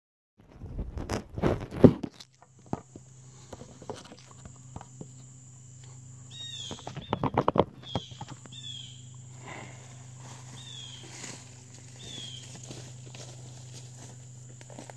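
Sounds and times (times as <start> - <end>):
high insect drone: 1.1 - 14.9
bird chirps: 6.1 - 9.3, 10.0 - 11.1, 12.0 - 12.6
footsteps in brush: 9.7 - 14.9
footsteps crunching leaf litter: 9.8 - 14.9.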